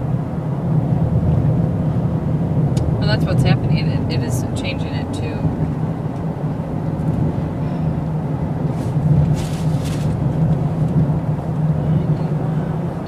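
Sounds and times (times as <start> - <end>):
car cabin road hum: 0.0 - 13.0.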